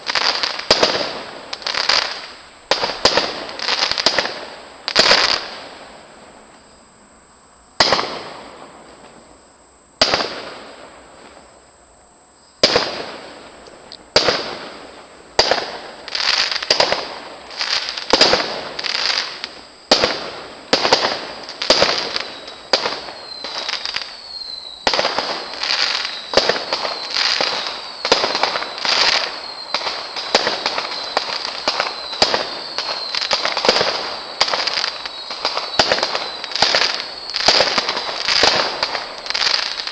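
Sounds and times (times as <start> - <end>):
fireworks bursts banging: 0.0 - 6.6, 7.8 - 9.3, 10.0 - 11.6, 12.6 - 39.9.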